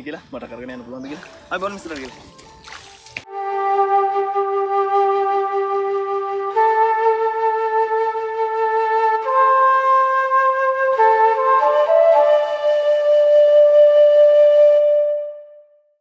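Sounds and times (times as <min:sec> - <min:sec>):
flute playing slow melody: 0:01.1 - 0:16.0.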